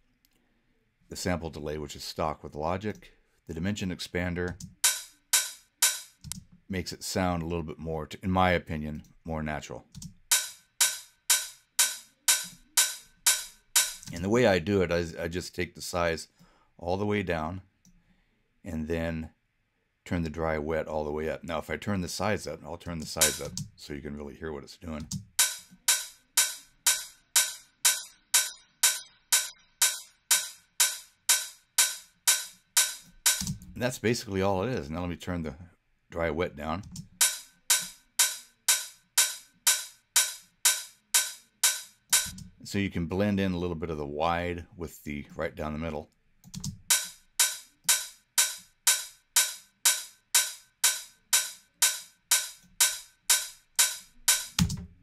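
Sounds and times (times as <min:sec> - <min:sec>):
drum machine open hi-hat: 0:04.5 - 0:06.3, 0:10.2 - 0:14.4, 0:23.0 - 0:23.8, 0:25.0 - 0:34.0, 0:37.1 - 0:42.6, 0:46.6 - 0:55.0.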